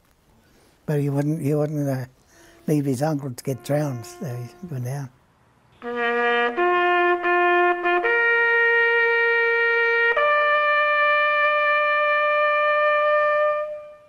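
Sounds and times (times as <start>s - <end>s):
horn playing long held notes: 2.4s - 5.1s, 5.8s - 14.0s.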